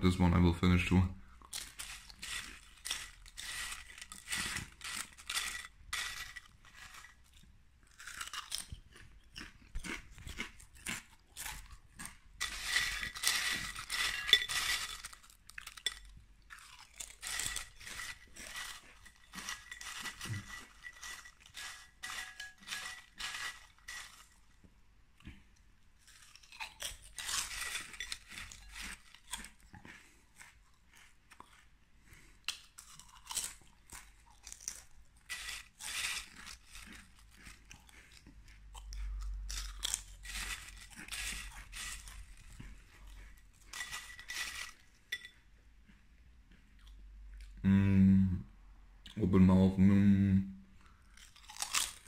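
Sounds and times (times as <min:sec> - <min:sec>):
chips being crunched: 0:01.4 - 0:24.5, 0:26.1 - 0:29.6, 0:32.5 - 0:37.7, 0:38.8 - 0:42.5, 0:43.7 - 0:44.9, 0:51.1 - 0:52.0.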